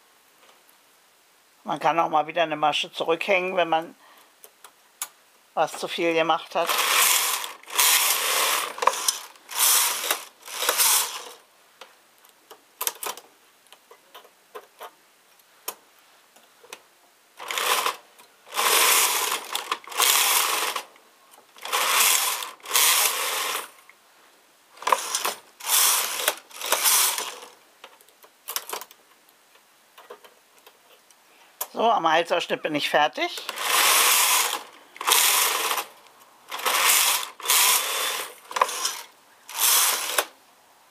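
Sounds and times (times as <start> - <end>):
knitting machine carriage swishing: 6.6 - 11.4, 21.6 - 23.8, 24.8 - 27.6, 33.5 - 40.3.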